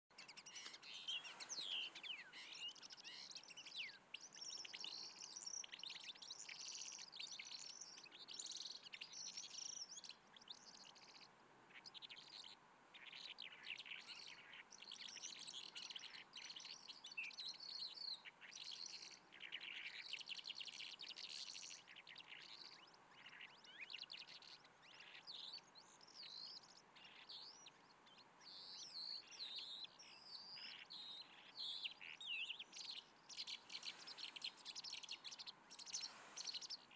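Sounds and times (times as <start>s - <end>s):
lark singing: 0.1s - 8.1s.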